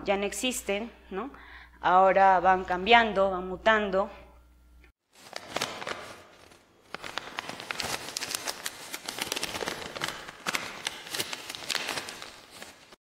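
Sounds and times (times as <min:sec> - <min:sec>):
paper crinkling: 0:05.1 - 0:13.0.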